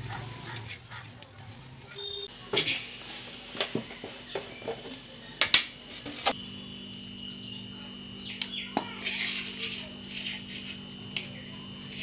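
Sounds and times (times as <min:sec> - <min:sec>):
faint steady hum: 0:06.3 - 0:12.0.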